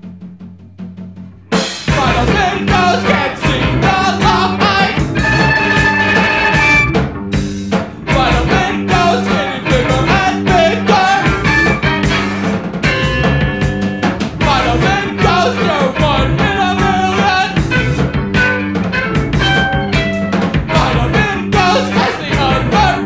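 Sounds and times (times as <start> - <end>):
bass guitar: 0.0 - 23.0
drum kit: 0.0 - 23.0
guitar playing: 1.4 - 23.0
person singing: 1.9 - 6.5, 8.0 - 11.8, 14.4 - 17.8, 20.6 - 23.0.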